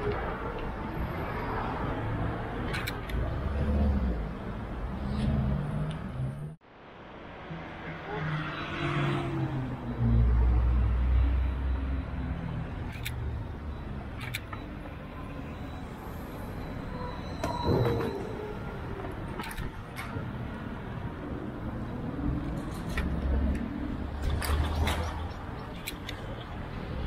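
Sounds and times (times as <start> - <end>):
motor vehicles passing: 0.0 - 6.6, 7.3 - 14.4, 20.9 - 27.0.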